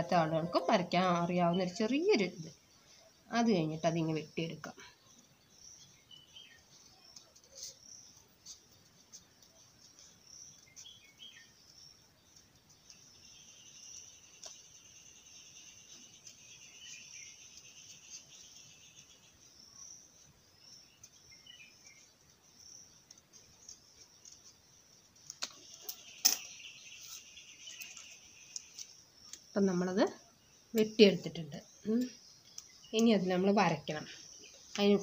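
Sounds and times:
high-pitched chirping: 0:00.0 - 0:01.7.

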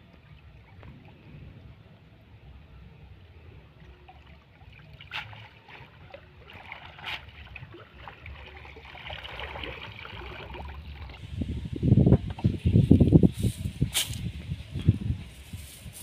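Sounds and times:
sharp splashes: 0:04.2 - 0:10.0
net swishing through water: 0:04.8 - 0:10.7.

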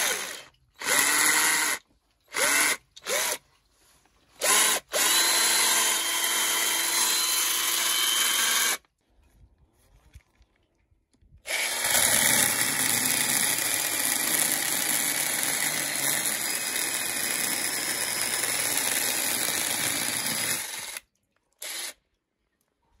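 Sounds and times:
chainsaw attachment cutting log: 0:00.0 - 0:03.4, 0:04.4 - 0:08.8, 0:11.5 - 0:22.0.

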